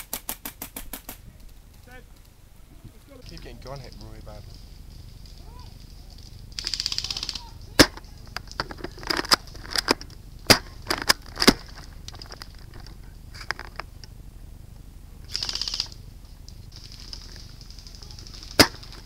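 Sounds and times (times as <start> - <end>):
airsoft gun sharp cracks: 0.0 - 1.2, 6.6 - 8.1, 9.1 - 11.8, 18.4 - 19.0
airsoft gun full-auto burst: 6.6 - 7.9, 15.3 - 16.0.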